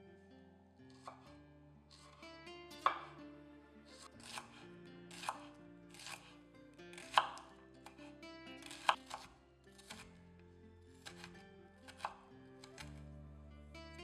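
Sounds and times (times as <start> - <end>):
knife blade knocking board: 2.8 - 3.1
knife slicing on cutting board: 2.8 - 3.1, 4.0 - 6.3, 7.0 - 7.4, 8.6 - 10.1.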